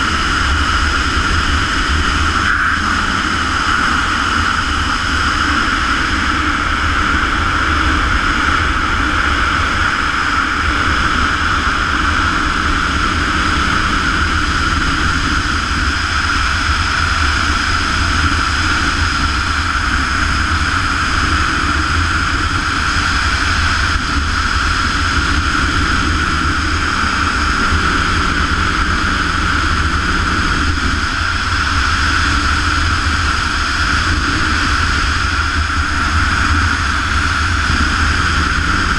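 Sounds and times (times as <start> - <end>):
wind roar on microphone: 0.0 - 38.9.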